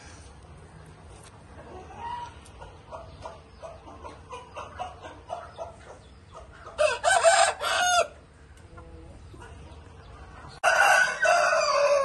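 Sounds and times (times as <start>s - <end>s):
rooster clucking: 1.6s - 9.8s
rooster crowing: 6.8s - 8.2s, 10.6s - 12.0s.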